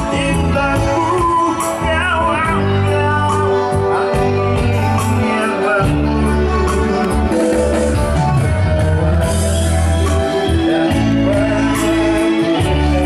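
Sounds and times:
held bass notes: 0.0 - 13.0
singing voice: 0.0 - 13.0.

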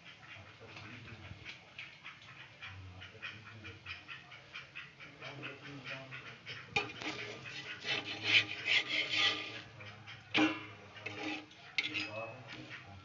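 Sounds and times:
frying in oil: 6.4 - 12.8
scraping in a frying pan: 6.4 - 12.9.

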